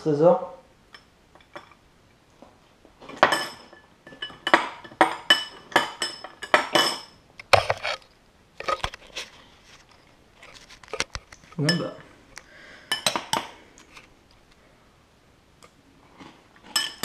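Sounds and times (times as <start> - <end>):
spoon clinking against glass: 3.2 - 7.2, 11.6 - 12.0.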